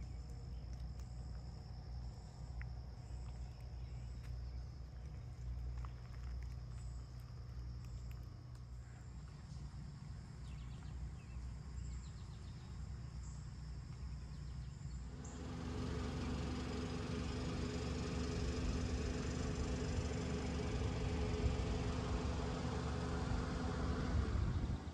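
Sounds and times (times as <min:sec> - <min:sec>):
faint high insect tones: 0:00.0 - 0:22.3
low machine hum: 0:00.0 - 0:24.9
low wind rumble: 0:23.2 - 0:24.9.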